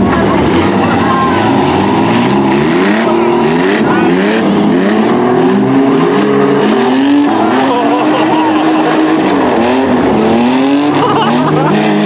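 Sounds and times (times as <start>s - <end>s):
truck engines revving hard: 0.0s - 12.0s.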